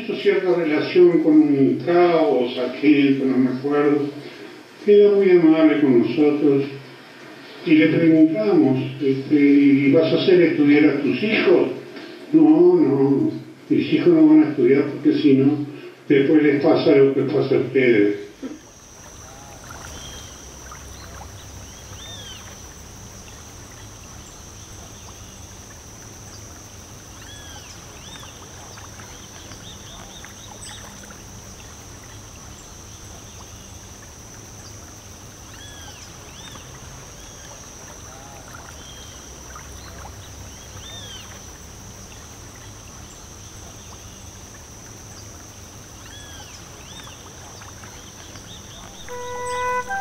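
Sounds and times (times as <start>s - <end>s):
high-pitched insect drone: 18.6s - 28.5s, 48.9s - 50.0s
bird chirps: 19.1s - 22.6s, 48.5s - 50.0s.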